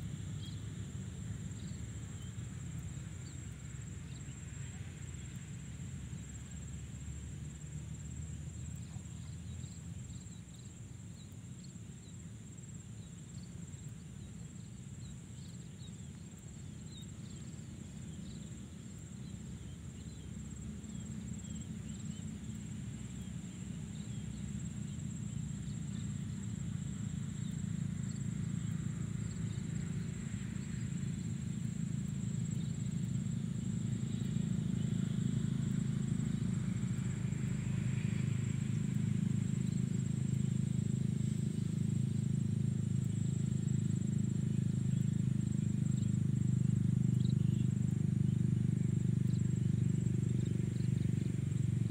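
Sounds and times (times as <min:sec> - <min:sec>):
high insect whine: 0:00.0 - 0:51.9
steady low rumble: 0:38.1 - 0:51.9.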